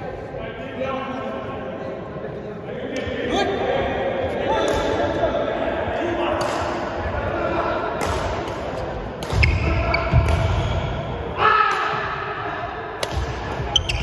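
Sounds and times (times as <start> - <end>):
rackets striking shuttlecock: 6.3 - 6.9, 7.9 - 10.7, 13.0 - 14.0
shoes squeaking on wooden floor: 13.7 - 14.0.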